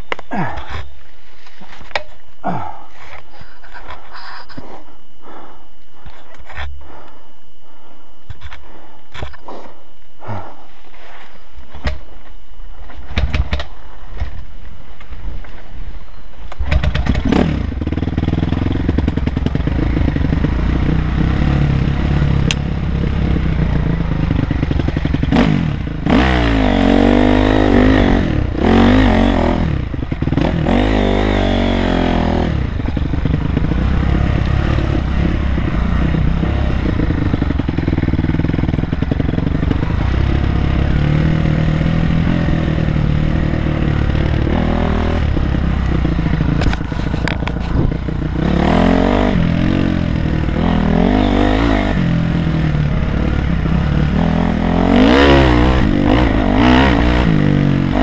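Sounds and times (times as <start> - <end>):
dirt bike engine revving: 16.6 - 58.0.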